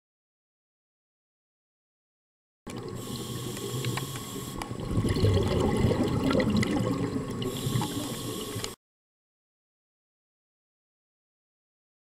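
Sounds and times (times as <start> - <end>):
faint clicks: 2.7 - 4.8, 7.8 - 8.8
underwater bubbles rushing: 2.7 - 8.8.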